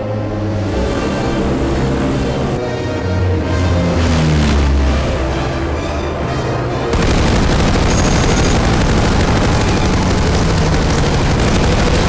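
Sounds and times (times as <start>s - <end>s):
film score music: 0.0s - 12.0s
rapid machine-gun fire: 7.0s - 12.0s.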